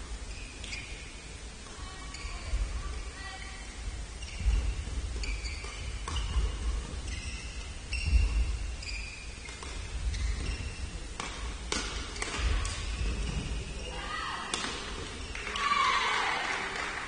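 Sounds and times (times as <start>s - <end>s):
shoe soles squeaking on court: 0.3s - 2.8s, 4.1s - 15.5s
racket hitting shuttlecock: 11.2s - 13.0s, 14.5s - 15.1s.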